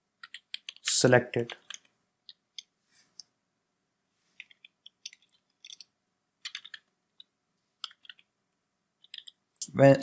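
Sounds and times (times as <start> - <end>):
keyboard keystrokes: 0.2 - 0.9, 4.4 - 6.9, 7.8 - 8.3, 9.0 - 9.4.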